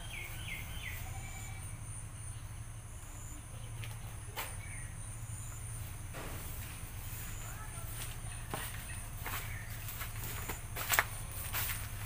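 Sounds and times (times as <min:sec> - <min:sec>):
bird chirps: 0:00.0 - 0:05.7
steady low hum: 0:00.0 - 0:12.0.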